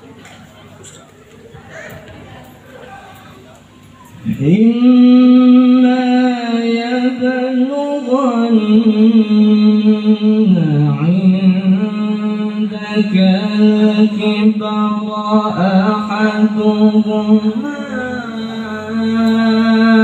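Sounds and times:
man reciting melodically: 0:04.0 - 0:20.0.

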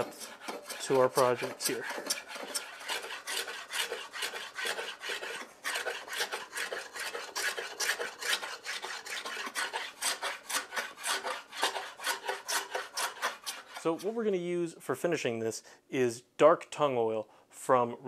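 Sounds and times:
block plane scraping wood: 0:00.0 - 0:14.2.

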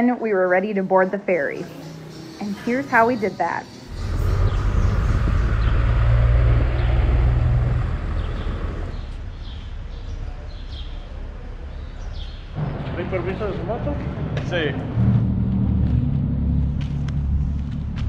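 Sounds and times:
motorcycle engine running: 0:01.8 - 0:09.6
rushing noise: 0:03.8 - 0:09.3.

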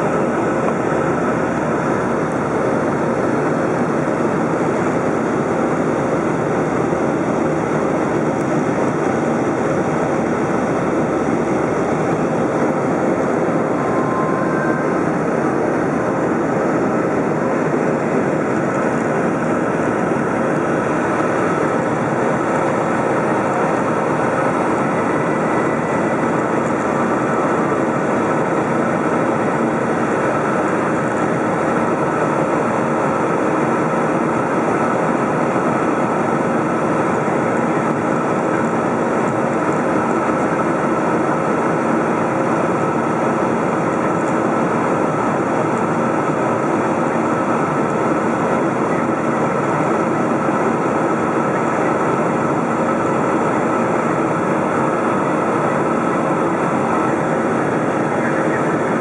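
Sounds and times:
jet engines droning: 0:00.0 - 0:59.0
faint steady tones: 0:04.9 - 0:35.0.

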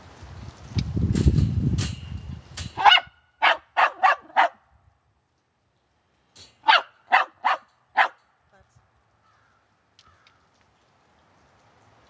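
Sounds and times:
dog barking: 0:02.8 - 0:04.6, 0:06.6 - 0:08.2.

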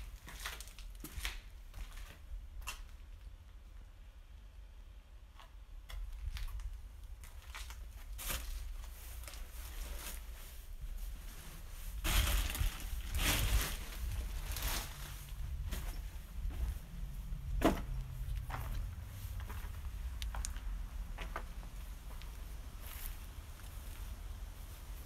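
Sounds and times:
footsteps crunching on gritty concrete: 0:00.1 - 0:02.9, 0:12.0 - 0:24.2
plastic and cloth rustling: 0:06.2 - 0:16.9.

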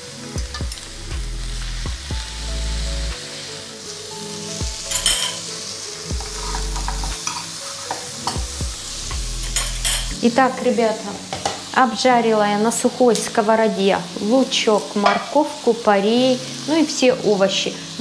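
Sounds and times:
background music: 0:00.0 - 0:18.0
vegetables sizzling in frying pan: 0:00.0 - 0:18.0
fork scraping a pan: 0:06.2 - 0:08.1, 0:09.4 - 0:10.2.

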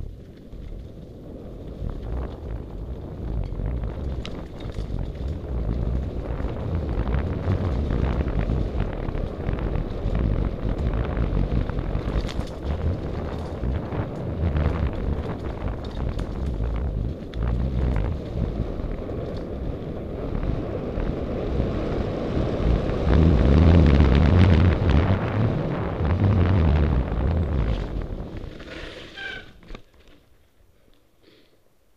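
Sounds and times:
wind buffeting microphone: 0:00.0 - 0:29.7
bike tyre rumble: 0:00.0 - 0:31.9
brake squeal: 0:26.2 - 0:29.8.

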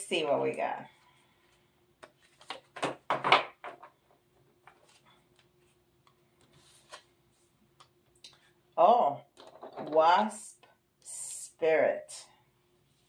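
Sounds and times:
cards shuffling: 0:02.0 - 0:03.0, 0:06.4 - 0:07.2.

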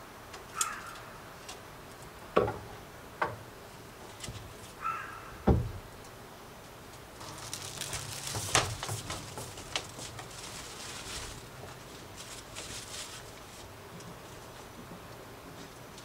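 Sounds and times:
plastic bag crinkling: 0:07.2 - 0:13.8.

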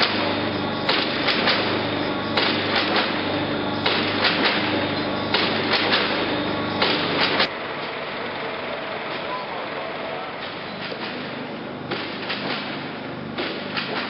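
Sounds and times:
low machine hum: 0:00.0 - 0:14.0
sharp knocks: 0:11.9 - 0:14.0.

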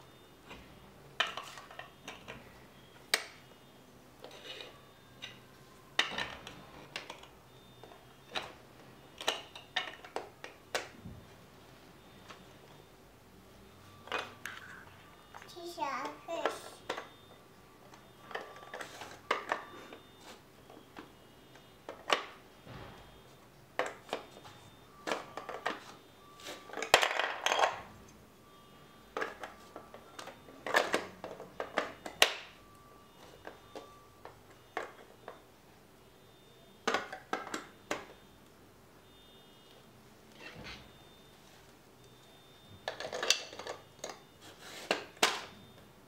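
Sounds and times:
plastic bricks clicking and clattering: 0:26.7 - 0:27.8, 0:42.8 - 0:44.2.

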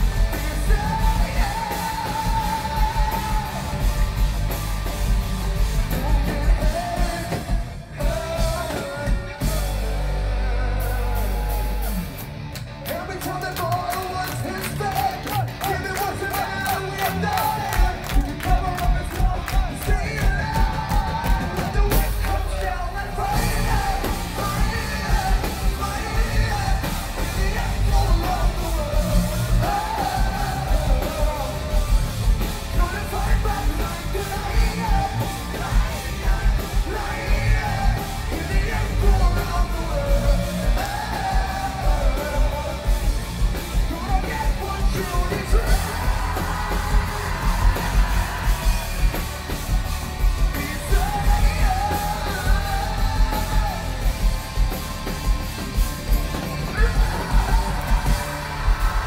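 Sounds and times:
fast pounding drums: 0:00.0 - 0:10.1, 0:12.9 - 0:59.0
electric guitars: 0:00.0 - 0:59.0.

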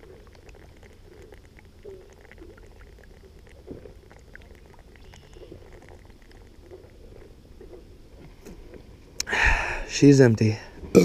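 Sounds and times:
person gulping beer: 0:00.0 - 0:07.8.

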